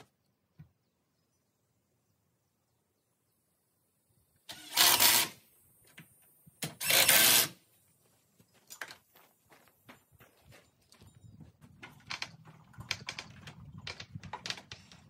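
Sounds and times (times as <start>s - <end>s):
cordless drill driving into wood: 4.5s - 5.4s, 6.6s - 7.6s.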